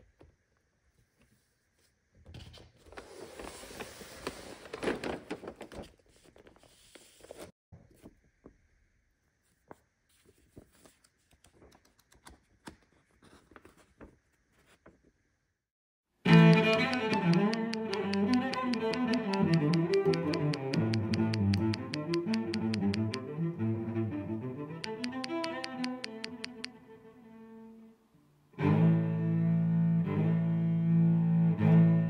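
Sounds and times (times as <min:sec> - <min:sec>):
cardboard and paper rustling: 0:02.8 - 0:07.5.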